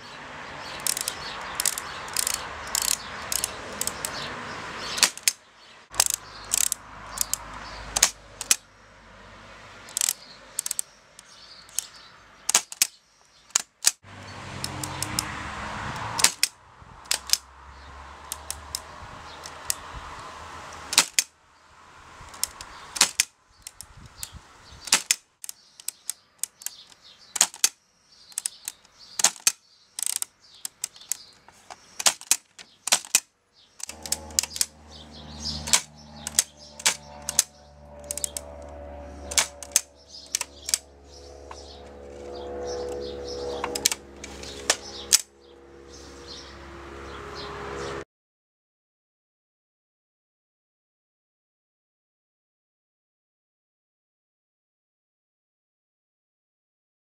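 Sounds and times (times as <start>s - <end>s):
typewriter sharp clicks: 5.0s - 5.4s, 12.5s - 12.9s, 16.2s - 16.5s, 20.9s - 21.3s, 22.4s - 23.3s, 24.9s - 25.2s, 25.8s - 27.8s, 28.4s - 31.2s, 32.0s - 34.7s, 35.6s - 37.5s, 39.3s - 39.8s.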